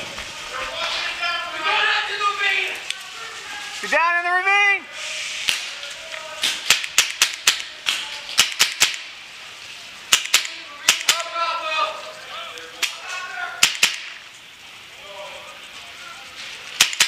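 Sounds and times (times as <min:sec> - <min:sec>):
paintball markers popping: 0:06.6 - 0:09.1, 0:10.1 - 0:11.3, 0:13.6 - 0:14.2, 0:16.8 - 0:17.0.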